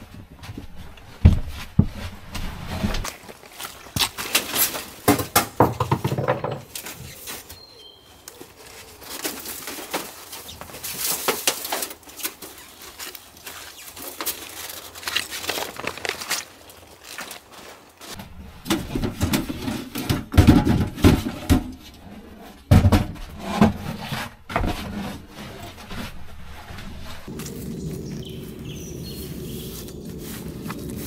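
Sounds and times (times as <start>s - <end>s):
metal flue pipe knocking and scraping: 5.0s - 6.8s, 18.2s - 27.3s.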